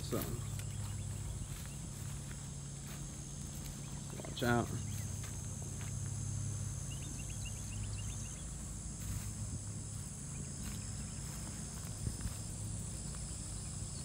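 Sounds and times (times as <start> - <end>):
bird chirps: 0.0 - 2.2, 6.6 - 8.7
footsteps through grass: 0.0 - 14.0
insects buzzing: 0.0 - 14.0
low steady hum: 0.0 - 14.0.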